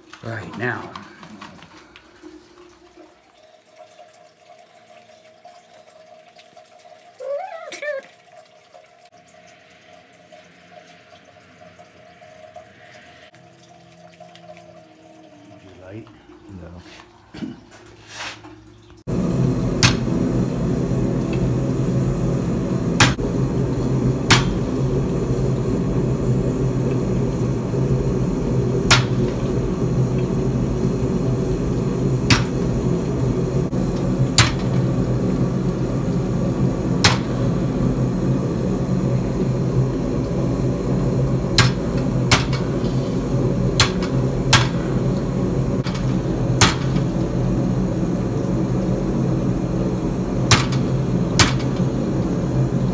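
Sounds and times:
power hammer running: 19.1s - 52.9s.

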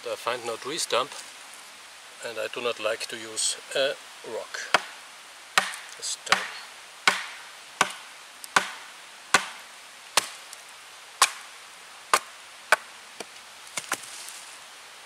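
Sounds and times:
baton knocking on hatchet: 5.6s - 8.0s, 8.6s - 8.8s, 9.4s - 9.6s.

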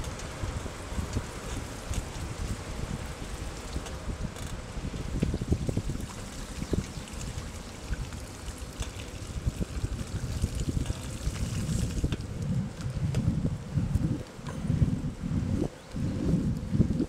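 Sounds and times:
bicycle tyres splashing through water: 0.0s - 13.5s
wind rumble on microphone: 0.0s - 17.0s.

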